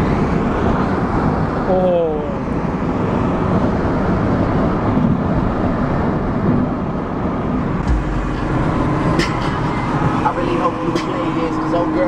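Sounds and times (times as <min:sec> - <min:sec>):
road and wind noise in car: 0:00.0 - 0:12.0
deep hum: 0:07.8 - 0:12.0.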